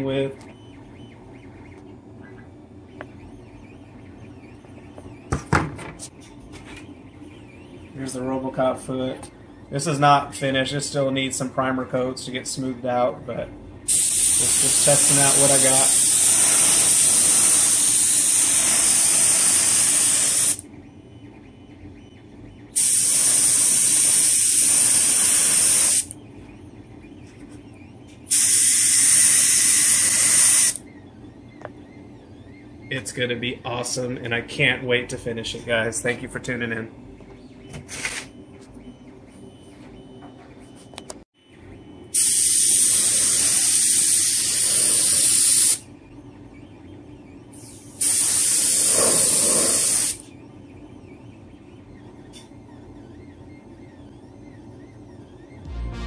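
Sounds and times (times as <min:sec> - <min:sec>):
loud knocks on workbench: 0:05.3 - 0:06.0
paint spray hissing bursts: 0:13.9 - 0:20.6, 0:22.8 - 0:26.1, 0:28.3 - 0:30.8, 0:42.2 - 0:45.8, 0:47.6 - 0:50.2.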